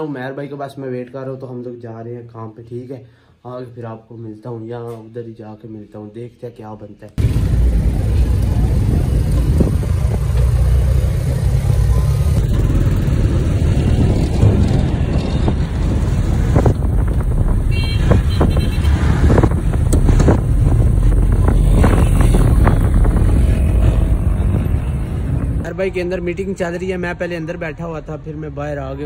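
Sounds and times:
road traffic rumble: 7.2 - 29.0.

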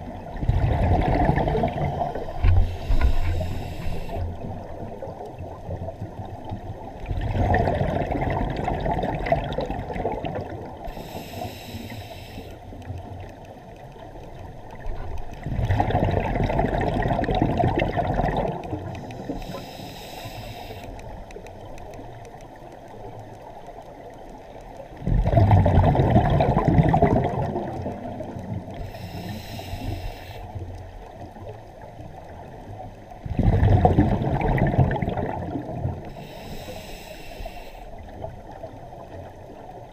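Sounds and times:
bubbling exhales underwater: 0.0 - 3.1, 7.0 - 10.9, 15.4 - 18.9, 25.0 - 28.3, 33.2 - 36.0
regulator hiss: 2.0 - 4.5, 10.9 - 12.7, 19.0 - 21.2, 28.8 - 30.6, 36.1 - 38.0.

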